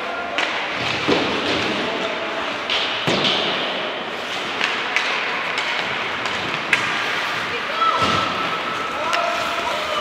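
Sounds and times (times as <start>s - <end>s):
hockey sticks and puck knocking: 0.2s - 7.4s.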